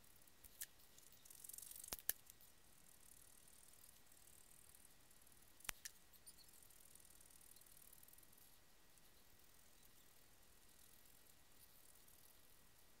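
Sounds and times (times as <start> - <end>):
scissors snipping: 1.7 - 2.2.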